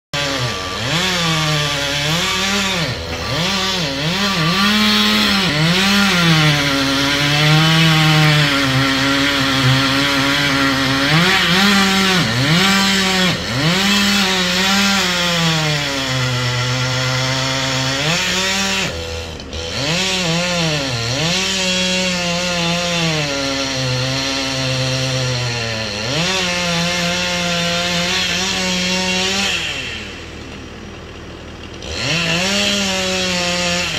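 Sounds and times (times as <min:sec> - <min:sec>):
chainsaw cutting wood: 0:00.2 - 0:33.9.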